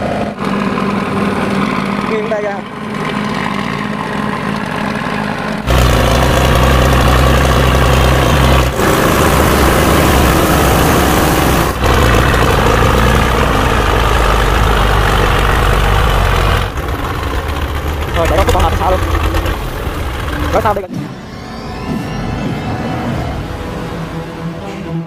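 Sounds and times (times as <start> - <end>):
tractor diesel engine running: 0.0 - 20.9.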